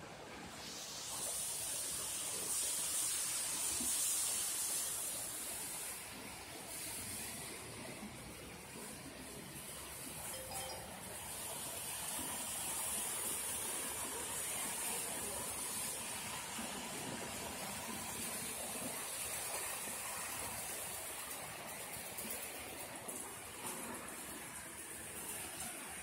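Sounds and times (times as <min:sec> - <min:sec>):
hot oil sizzling: 0:00.5 - 0:07.7.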